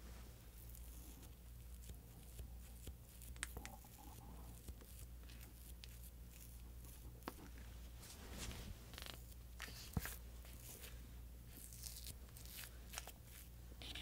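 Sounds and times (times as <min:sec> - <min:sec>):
faint low steady hum: 0:00.0 - 0:14.0
small spoon scraping paper cup: 0:11.6 - 0:14.0.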